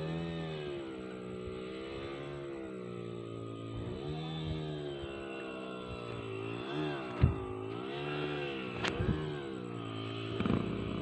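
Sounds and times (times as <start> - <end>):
motorcycle engine revving: 0.0 - 11.0.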